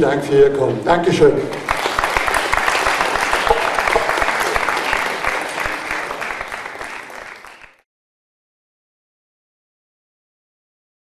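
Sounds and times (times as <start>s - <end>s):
crowd applauding: 1.5s - 7.8s.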